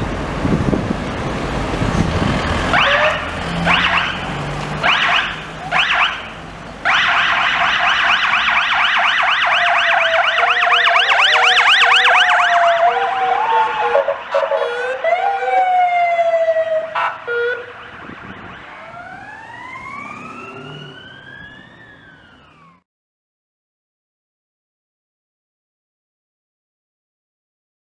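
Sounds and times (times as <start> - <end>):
police sirens yelping: 2.5 - 22.8
short siren blasts: 2.7 - 22.8.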